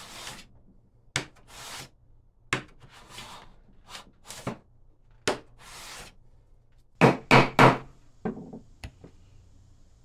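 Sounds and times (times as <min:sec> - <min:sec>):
scraping rub on wood: 0:00.0 - 0:00.5, 0:01.5 - 0:01.9, 0:05.6 - 0:06.2.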